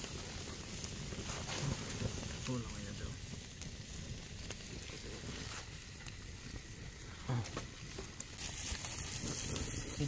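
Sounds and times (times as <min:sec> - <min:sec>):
fire rumbling: 0:00.0 - 0:10.0
wood fire crackling: 0:00.0 - 0:10.0.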